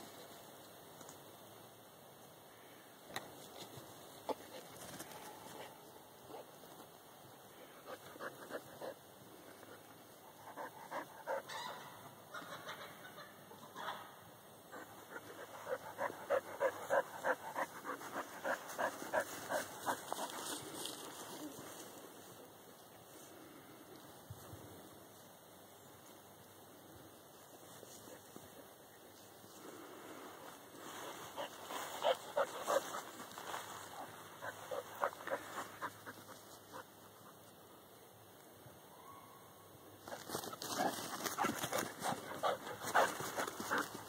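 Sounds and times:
dog panting: 15.1 - 20.5, 40.6 - 44.0.

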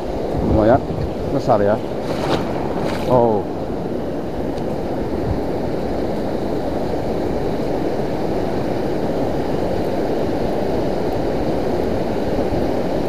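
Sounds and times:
sea surf and choppy water: 0.0 - 13.0
wind rumbling on microphone: 0.0 - 13.0.

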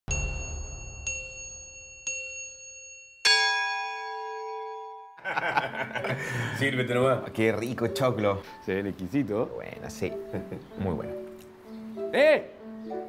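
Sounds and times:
bright chime dings: 0.1 - 5.2
full multi-tone chime: 0.1 - 5.2.

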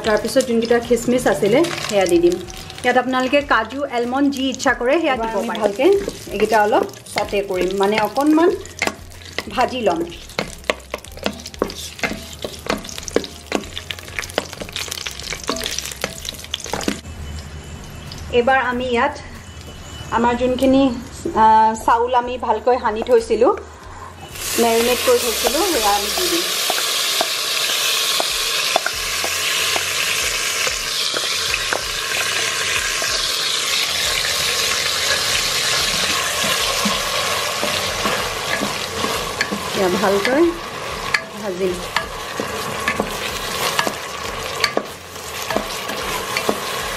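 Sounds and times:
wooden spatula scraping pot: 5.2 - 17.0, 35.0 - 46.9
wooden spatula stirring: 5.2 - 17.0
faint sizzle: 24.0 - 46.9.

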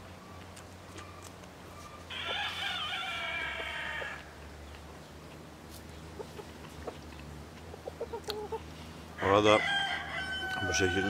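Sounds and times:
rooster crowing: 2.1 - 4.4, 9.2 - 11.0.

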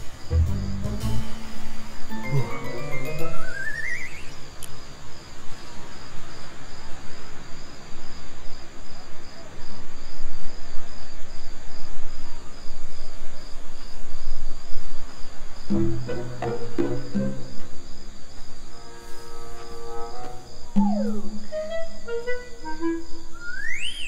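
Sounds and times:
crickets chirping: 0.0 - 24.0
wavering rising tone: 18.8 - 24.0.

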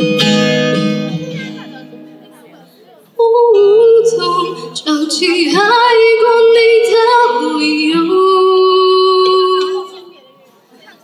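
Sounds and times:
woman singing a ballad: 3.2 - 10.1.

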